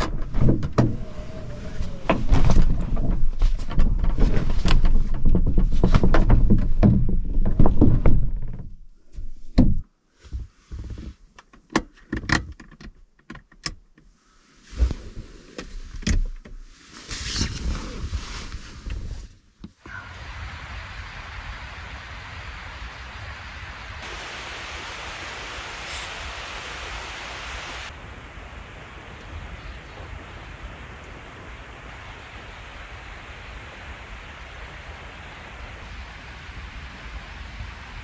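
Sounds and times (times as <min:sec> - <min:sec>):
canvas rustling and flapping: 0:00.0 - 0:08.5, 0:14.6 - 0:19.4
knocks and clunks: 0:00.0 - 0:14.0
sleeping bag rustling: 0:16.6 - 0:19.4.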